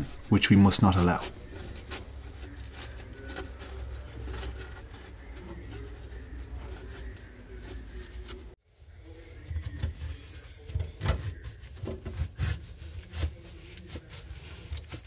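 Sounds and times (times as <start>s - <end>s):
foam seal scraping and tearing: 11.2s - 15.0s.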